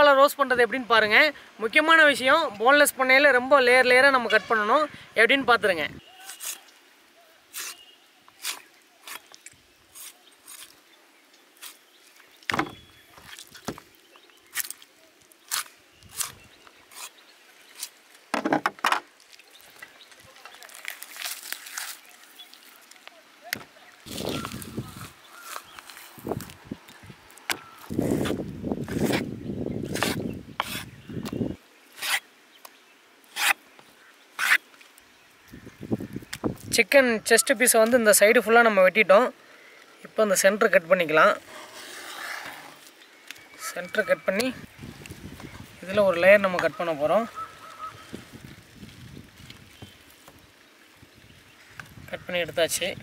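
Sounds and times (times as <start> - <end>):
knife scraping cutting board: 29.9 - 30.9.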